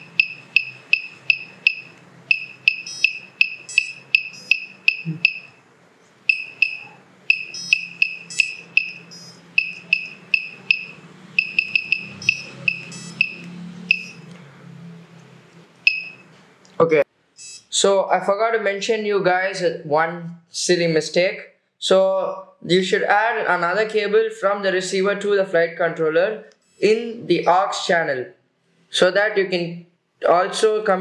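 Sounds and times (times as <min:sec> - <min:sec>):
short high-pitched beeps: 0:00.0 - 0:05.6, 0:06.3 - 0:14.3, 0:15.8 - 0:16.3, 0:17.4 - 0:17.7.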